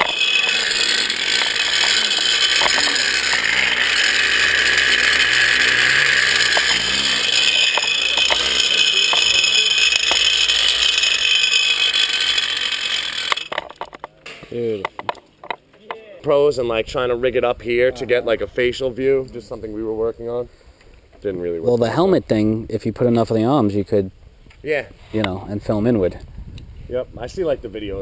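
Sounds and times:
pulley wheels whirring on cable: 0.0 - 15.6.

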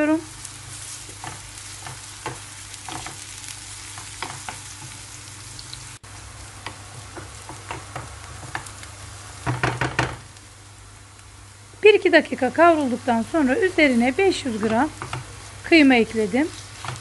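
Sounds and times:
vegetables sizzling in oil: 0.0 - 17.0
wooden spoon scraping a pan: 0.4 - 5.1, 13.9 - 17.0.

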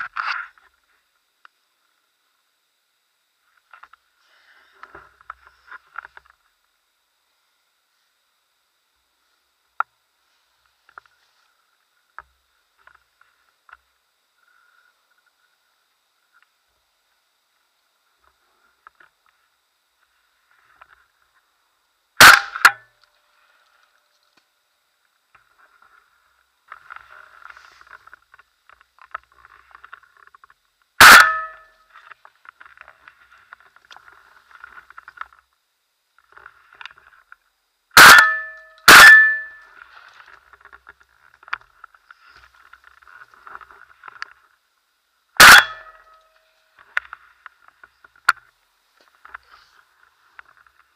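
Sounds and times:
faint scratchy noise: 0.0 - 50.9
shotgun shots: 22.2 - 22.8, 31.0 - 31.6, 38.0 - 39.5, 45.4 - 45.8.

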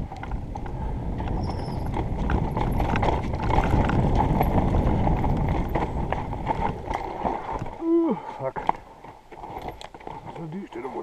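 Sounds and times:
mountain bike rattling and knocking: 0.0 - 7.8, 8.4 - 11.0
tyre rumble on dirt: 0.2 - 7.9.

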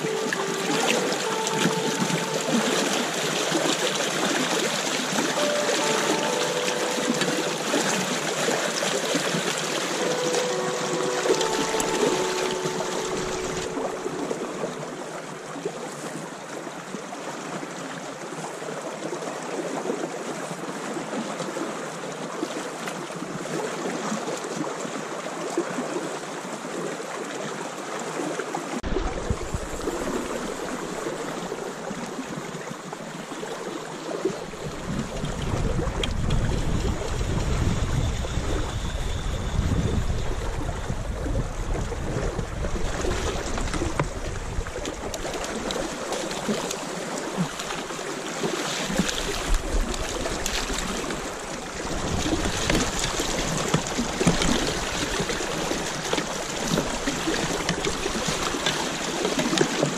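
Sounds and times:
river water rushing and lapping: 0.0 - 59.9
wind rumbling on microphone: 28.8 - 32.4, 34.2 - 48.1, 48.8 - 59.9.

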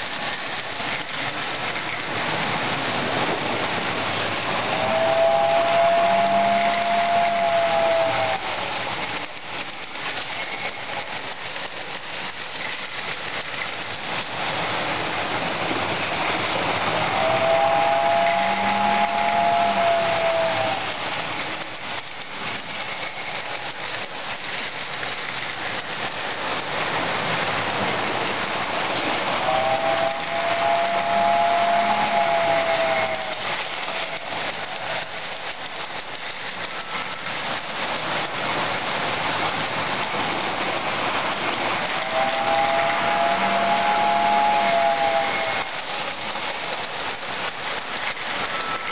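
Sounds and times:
toy trains clattering on metal track: 0.0 - 48.9
locomotive whistle: 3.6 - 9.0, 15.6 - 21.4, 29.2 - 37.3, 41.7 - 46.7, 47.4 - 48.9.

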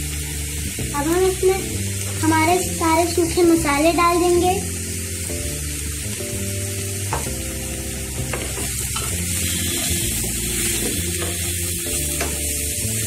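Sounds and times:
onions sizzling in oil: 0.0 - 13.0
spatula scraping and knocking pan: 8.2 - 12.5.

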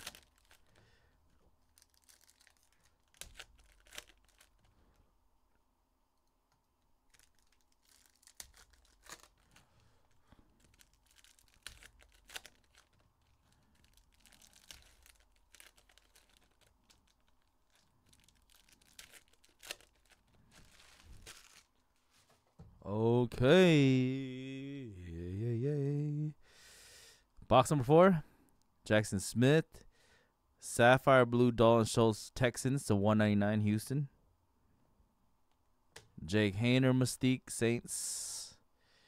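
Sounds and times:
wrappers crinkling and tearing: 0.0 - 0.8, 1.6 - 4.8, 7.0 - 22.3.

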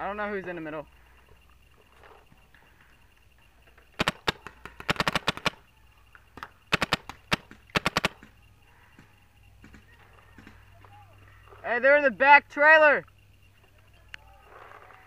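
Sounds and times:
paintball marker firing shots: 4.0 - 5.6, 6.4 - 8.4.

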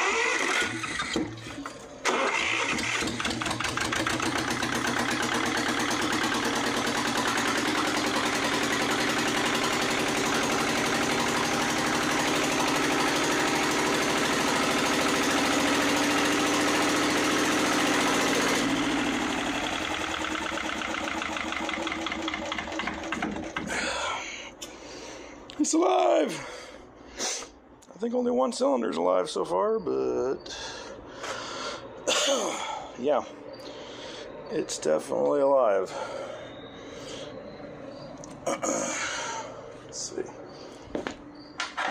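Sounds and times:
electric starter cranking engine: 0.0 - 24.0
diesel engine running: 0.0 - 27.1, 29.4 - 41.9.

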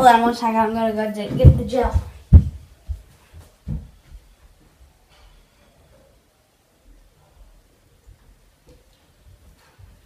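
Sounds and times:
soft low thumps: 1.2 - 4.3.

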